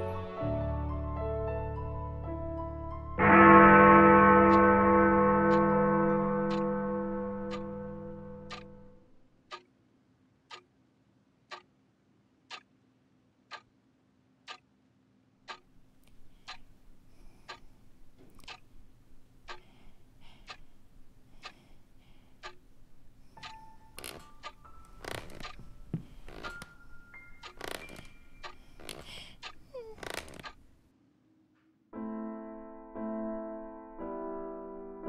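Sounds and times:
clock ticking: 0:03.2 - 0:09.7, 0:10.5 - 0:10.7, 0:11.5 - 0:11.7, 0:12.5 - 0:12.7, 0:13.5 - 0:13.7, 0:14.5 - 0:14.7, 0:15.5 - 0:30.7.

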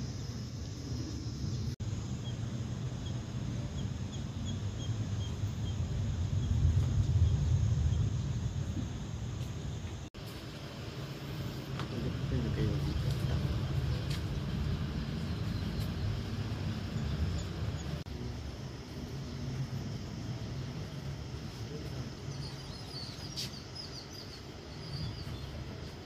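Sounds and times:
small birds chirping: 0:00.0 - 0:10.1, 0:11.9 - 0:18.1, 0:19.1 - 0:26.0
low background rumble: 0:00.0 - 0:26.0.

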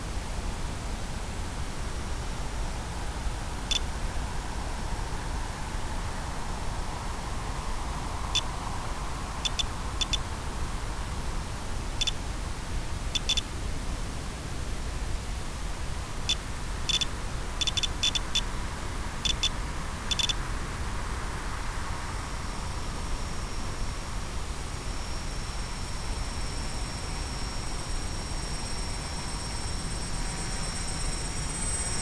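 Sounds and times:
faint high hum: 0:00.0 - 0:32.0
short high electronic beeps: 0:09.4 - 0:10.2, 0:13.2 - 0:13.4, 0:16.9 - 0:18.4, 0:19.3 - 0:19.5, 0:20.1 - 0:20.4.

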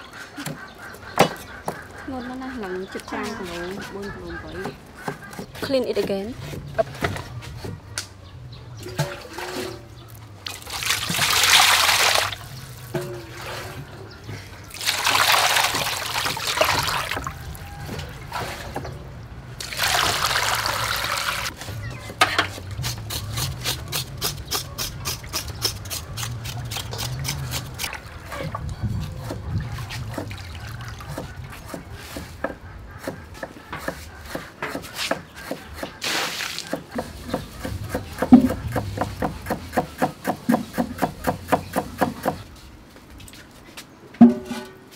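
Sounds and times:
water sloshing in metal basin: 0:08.8 - 0:21.5, 0:44.2 - 0:44.9.

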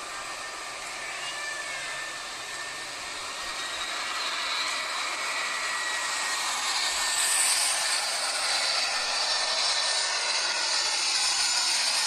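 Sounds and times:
jet engine whine and hiss: 0:00.0 - 0:12.0.

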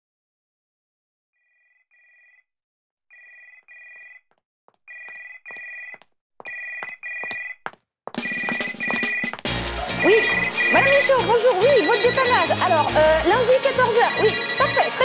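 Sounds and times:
telephone ringing: 0:01.5 - 0:02.5, 0:03.1 - 0:04.3, 0:04.9 - 0:07.6, 0:08.2 - 0:15.0.

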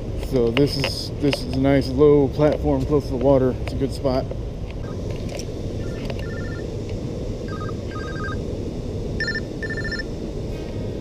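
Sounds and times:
cell phone ringtone beeping: 0:05.8 - 0:06.6, 0:07.5 - 0:08.4, 0:09.2 - 0:10.1.

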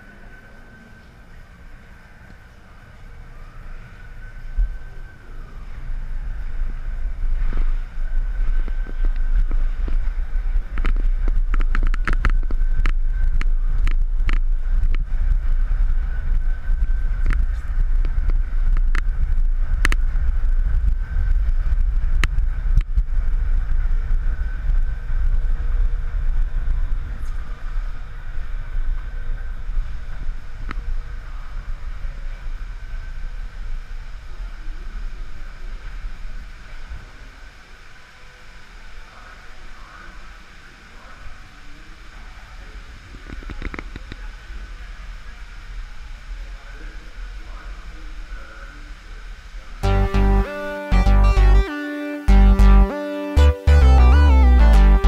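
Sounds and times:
wind buffeting microphone: 0:00.0 - 0:37.6
amusement ride low rumble: 0:00.0 - 0:37.8, 0:49.8 - 0:55.0
faint steady whine: 0:00.0 - 0:55.0.

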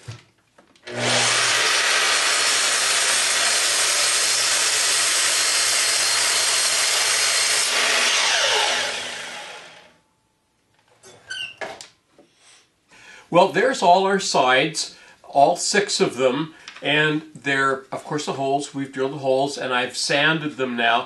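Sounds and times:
miter saw cutting wood: 0:00.9 - 0:09.9
saw blade winding down whine: 0:00.9 - 0:09.9.

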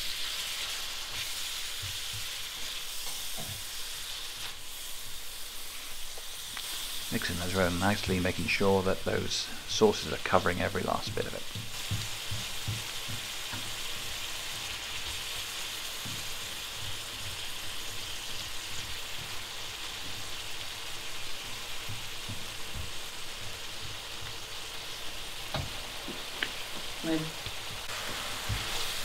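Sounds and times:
stir-fry sizzling in a pan: 0:00.0 - 0:29.0
spatula knocking on pan: 0:11.0 - 0:15.0, 0:15.9 - 0:20.4, 0:21.4 - 0:24.4, 0:25.5 - 0:26.9.

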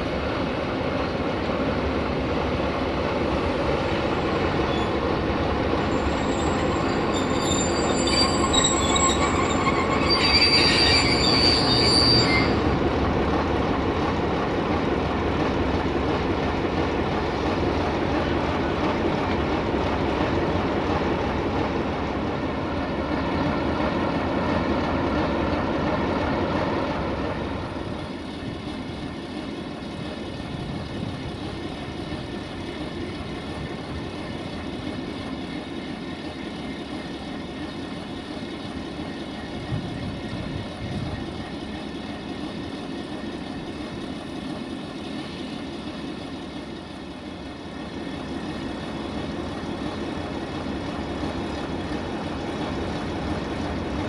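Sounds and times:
rumble of train wheels: 0:00.0 - 0:54.0
high-pitched wheel squeal: 0:05.9 - 0:12.6.

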